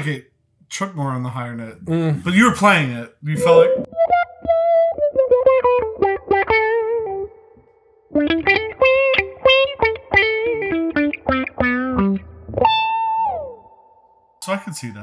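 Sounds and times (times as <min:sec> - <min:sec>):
electric guitar with auto-wah: 0:03.4 - 0:07.5, 0:08.1 - 0:13.7.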